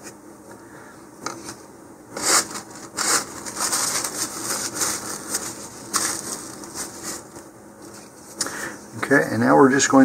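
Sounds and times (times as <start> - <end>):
paper tissue crinkling: 2.2 - 8.4.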